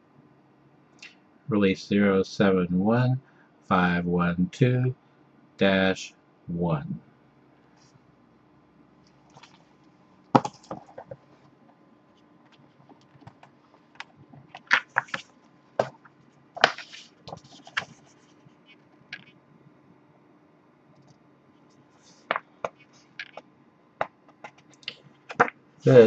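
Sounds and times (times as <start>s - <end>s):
paper rustling: 14.4s - 16.0s, 16.6s - 18.6s
cardboard clicks and taps: 24.0s - 25.6s.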